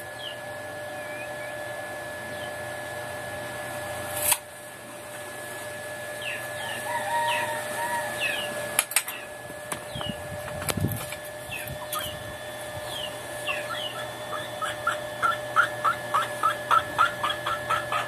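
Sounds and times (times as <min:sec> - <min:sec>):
steady hum: 0:00.0 - 0:18.0
birds chirping: 0:00.1 - 0:01.6, 0:06.2 - 0:10.2, 0:11.4 - 0:18.0.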